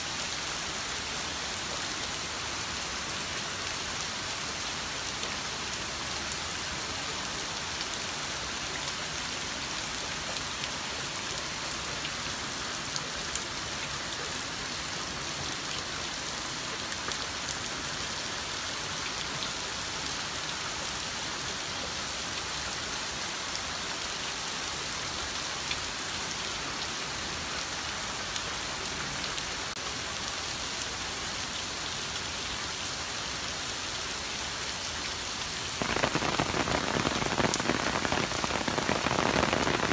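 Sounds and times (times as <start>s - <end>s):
heavy rain hissing: 35.4s - 39.9s
raindrop ticks: 35.8s - 39.9s.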